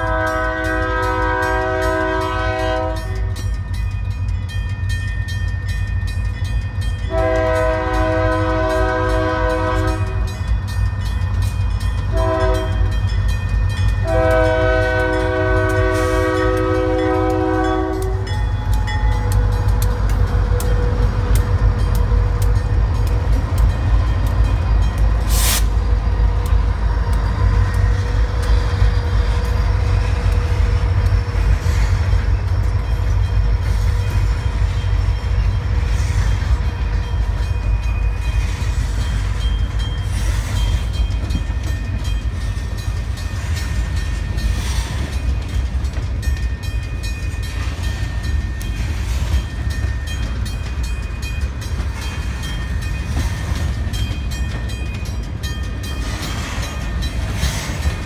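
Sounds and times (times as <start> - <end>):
locomotive multi-note air horn: 0.0 - 3.3, 7.1 - 10.4, 12.1 - 12.9, 14.0 - 18.4, 25.3 - 25.8
locomotive engine running: 0.0 - 58.0
train wheels rumbling on rails: 0.0 - 58.0.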